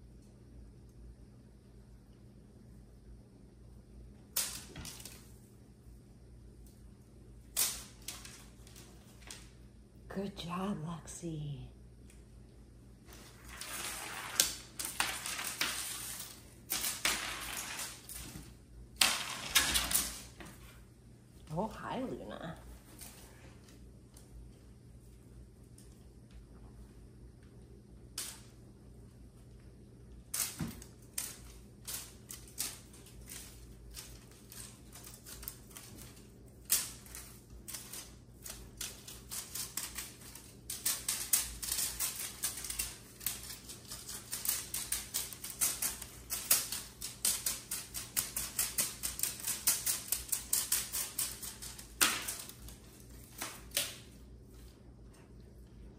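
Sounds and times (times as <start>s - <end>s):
cat claws clicking on hardwood floor: 30.2s - 54.1s.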